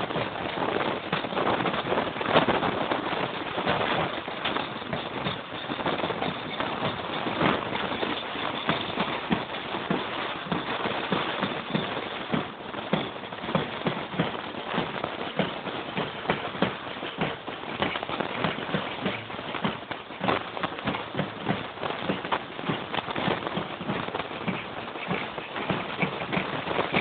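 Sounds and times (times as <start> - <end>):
footsteps on dirt path: 0.0 - 27.0
steady rustling: 0.0 - 27.0.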